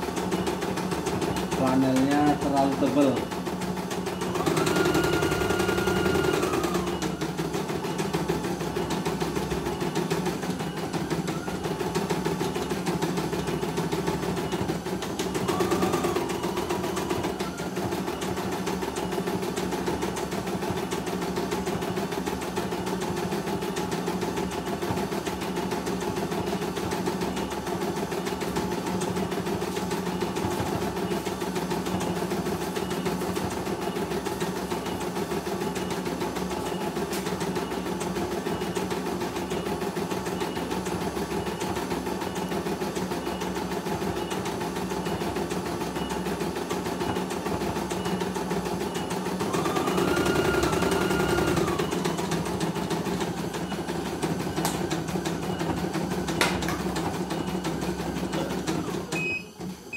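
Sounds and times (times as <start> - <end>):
embroidery machine needle stitching: 0.0 - 36.0.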